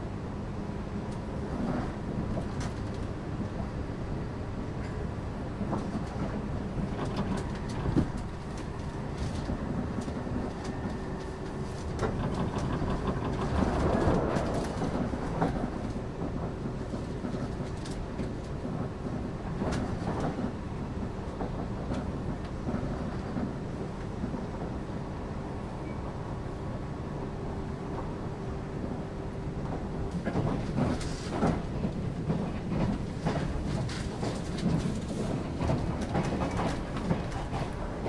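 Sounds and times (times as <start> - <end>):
train wheels rumbling on rail: 0.0 - 38.0
clicks over rail joints: 5.6 - 20.6, 29.6 - 38.0.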